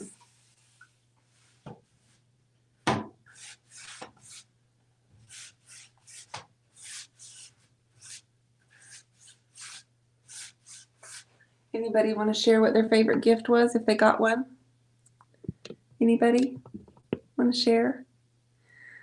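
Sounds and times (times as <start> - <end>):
paintbrush swishing: 0.0 - 2.2, 3.3 - 4.5, 5.2 - 11.4.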